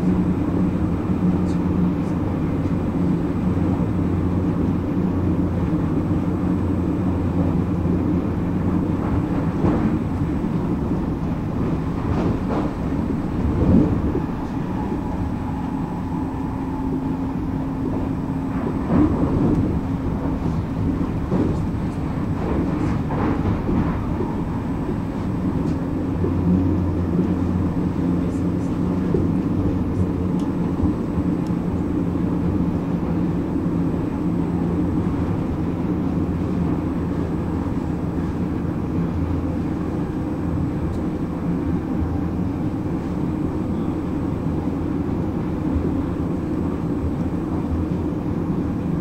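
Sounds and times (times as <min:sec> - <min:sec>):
low hum: 0:00.0 - 0:49.0
train wheels rumbling on rail: 0:00.0 - 0:49.0
track knocks: 0:08.6 - 0:31.6
faint whine: 0:12.8 - 0:49.0.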